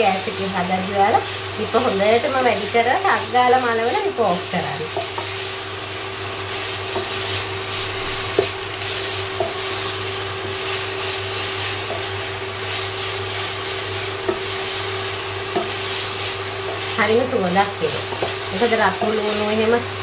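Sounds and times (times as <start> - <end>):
cabbage sizzling in a pot: 0.0 - 20.0
steady hum: 0.0 - 20.0
spatula knocking against pot: 15.5 - 15.8.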